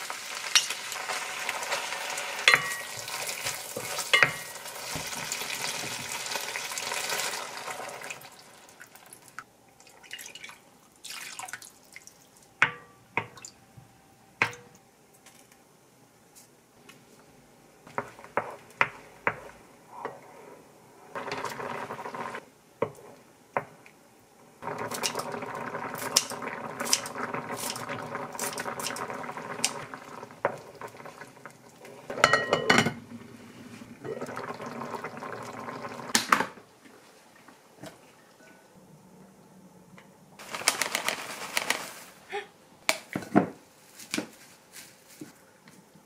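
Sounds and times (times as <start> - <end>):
utensils clinking against pot: 2.5 - 3.1
sauce bubbling in pot: 24.6 - 32.3, 34.0 - 36.3.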